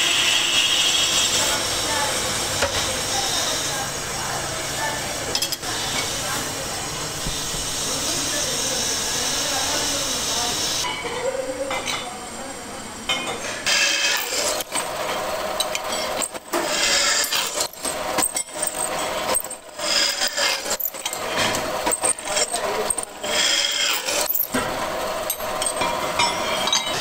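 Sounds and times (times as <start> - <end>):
drill bit grinding through metal: 0.0 - 10.8, 13.6 - 27.0.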